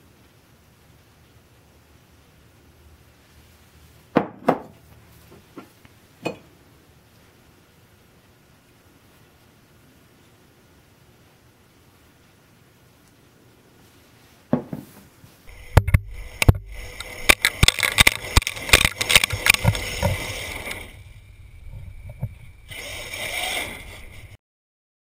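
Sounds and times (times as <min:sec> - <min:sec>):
steady rushing noise: 0:15.4 - 0:24.4.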